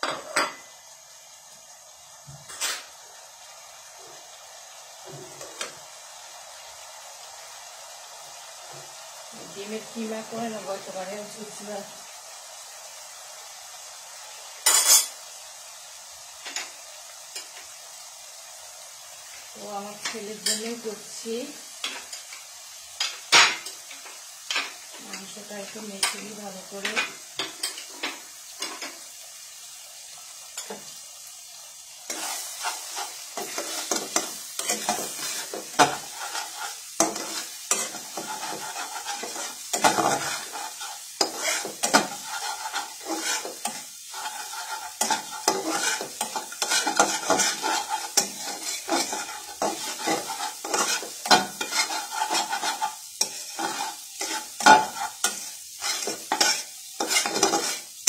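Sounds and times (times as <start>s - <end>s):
eggs sizzling in butter: 0.0s - 58.0s
spatula scraping a pan: 14.6s - 15.2s, 21.8s - 29.1s, 31.9s - 58.0s.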